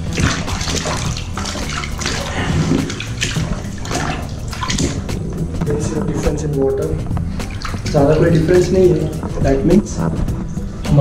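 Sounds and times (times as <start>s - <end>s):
foam pads squeezed in water: 0.0s - 6.3s, 7.3s - 9.2s
water sloshing in a plastic bucket: 0.0s - 9.4s.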